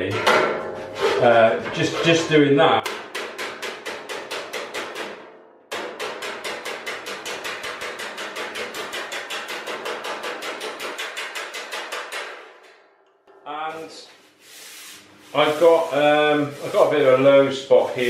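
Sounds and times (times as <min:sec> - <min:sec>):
hammer striking steel sheet: 0:00.0 - 0:01.2, 0:02.8 - 0:13.9.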